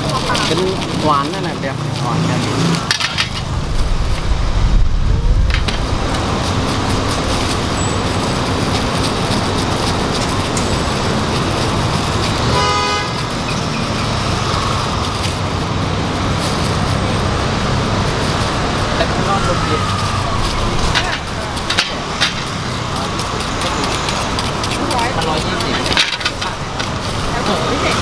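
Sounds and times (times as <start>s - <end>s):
street traffic: 0.0s - 28.0s
vehicle passing with low rumble: 0.0s - 28.0s
short horn toot: 12.5s - 13.2s.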